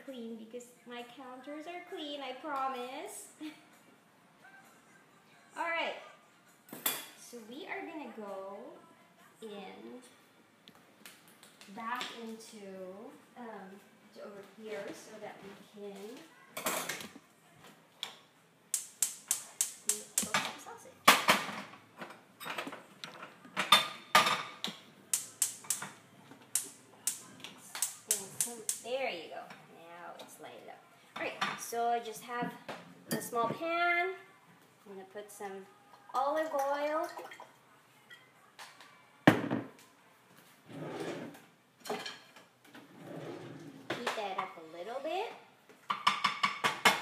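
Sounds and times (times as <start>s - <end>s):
kitchen drawer sliding open: 40.7s - 41.4s, 42.8s - 43.9s.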